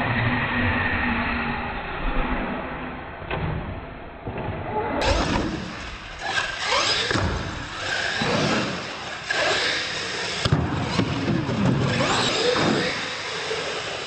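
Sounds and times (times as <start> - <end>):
toy truck electric motors whining: 5.0 - 14.0.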